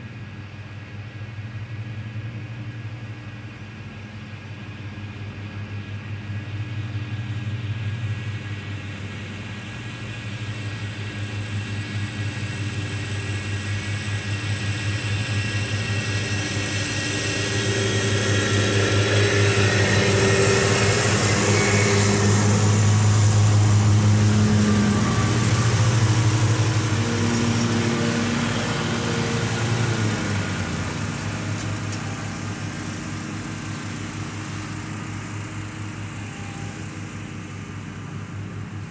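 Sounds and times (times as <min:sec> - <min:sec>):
lawn mowers droning: 0:08.8 - 0:38.9.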